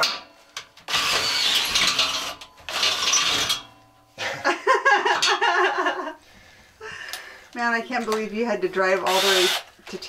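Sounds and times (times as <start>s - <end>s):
cordless drill grinding steel: 0.8s - 3.7s, 9.0s - 9.8s.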